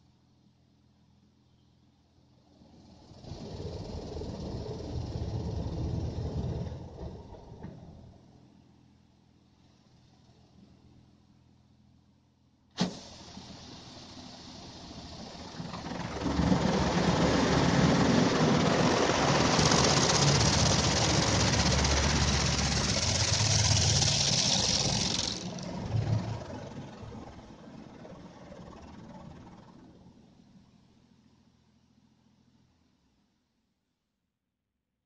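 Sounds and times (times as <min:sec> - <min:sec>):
low rumble: 0:15.0 - 0:29.7
high-pressure water jets hissing: 0:18.3 - 0:25.6.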